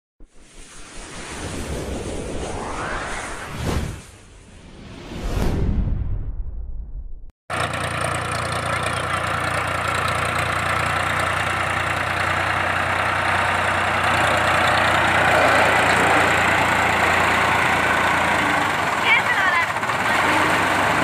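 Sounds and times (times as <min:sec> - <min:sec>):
tractor diesel engine under load: 0:07.5 - 0:21.0.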